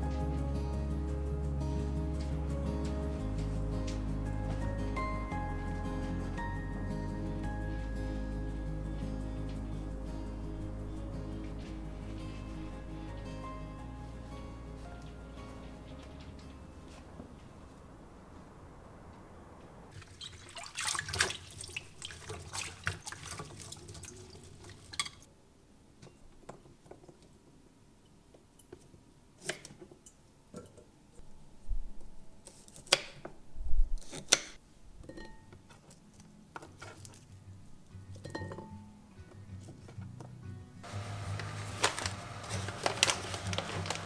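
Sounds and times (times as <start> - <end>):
tap water splashing: 20.0 - 25.2.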